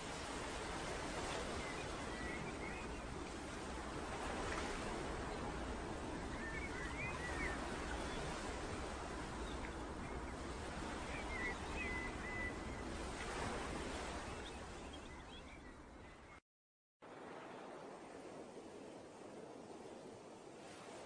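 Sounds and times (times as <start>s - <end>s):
sea surf rushing: 0.0s - 14.7s.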